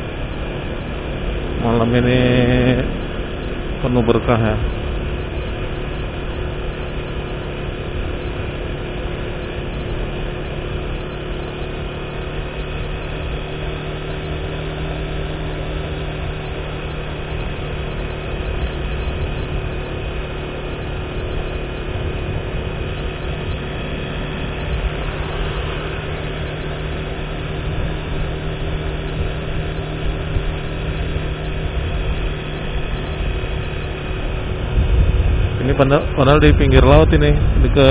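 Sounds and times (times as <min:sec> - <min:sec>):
road noise: 0:00.0 - 0:37.9
vehicle engine hum: 0:00.0 - 0:37.9.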